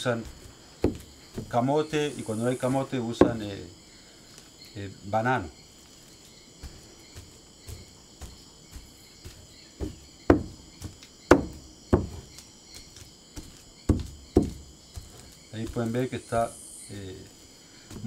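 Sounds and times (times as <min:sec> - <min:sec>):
insect chirring: 0:00.0 - 0:18.0
dull thuds of pounding in wood: 0:00.2 - 0:01.6, 0:03.1 - 0:03.6, 0:06.6 - 0:15.9.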